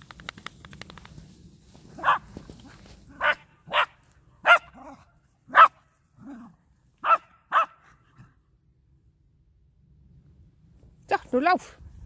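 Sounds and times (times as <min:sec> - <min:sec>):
small dog barking: 0:02.0 - 0:02.3, 0:03.1 - 0:07.9.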